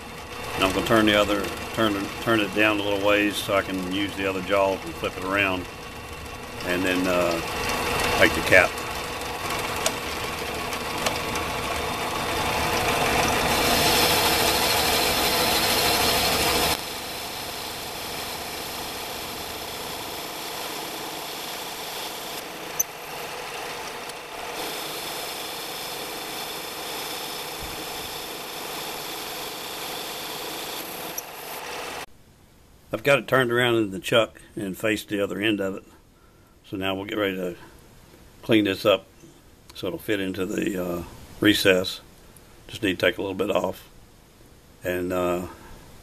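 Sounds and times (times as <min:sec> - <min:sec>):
lathe motor and gear whine: 0:00.0 - 0:32.1.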